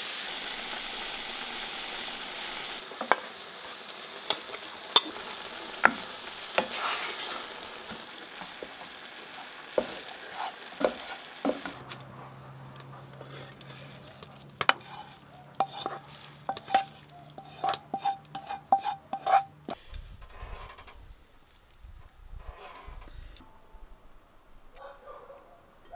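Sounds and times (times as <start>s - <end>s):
vegetables sizzling in frying pan: 0.0s - 12.1s, 13.2s - 19.5s
spoon tapping and scraping pan: 4.3s - 7.1s, 9.8s - 12.0s, 12.8s - 19.8s
wooden spoon knocking on pan: 5.8s - 6.8s, 9.8s - 10.0s, 10.8s - 11.8s.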